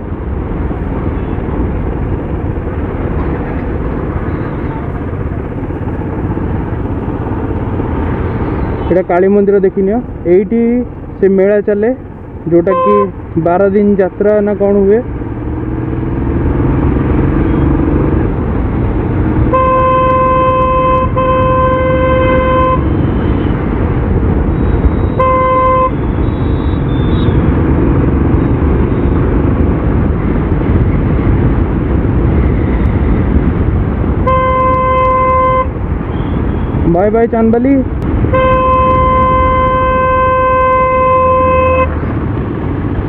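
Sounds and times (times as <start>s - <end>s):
motorcycle wind and road noise: 0.0s - 43.0s
vehicle horn honking: 12.6s - 13.1s, 19.5s - 23.6s, 24.9s - 27.4s, 34.2s - 36.8s, 38.2s - 42.0s.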